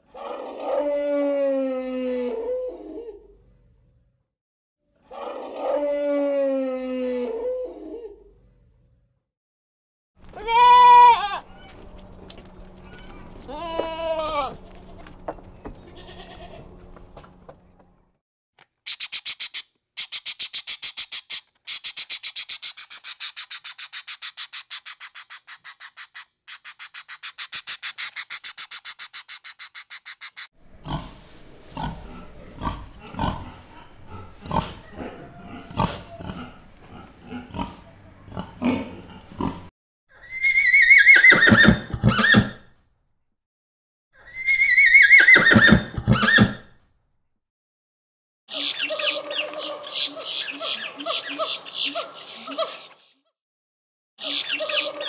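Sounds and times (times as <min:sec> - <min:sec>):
goat bleating: 0:10.2 - 0:11.8, 0:12.8 - 0:15.1, 0:15.8 - 0:16.8
horse whinnying: 0:40.2 - 0:42.6, 0:44.2 - 0:46.6.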